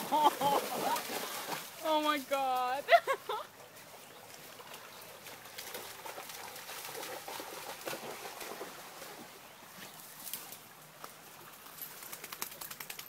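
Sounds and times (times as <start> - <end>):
shallow stream rushing: 0.0 - 12.0
twigs and branches rustling: 9.8 - 12.8.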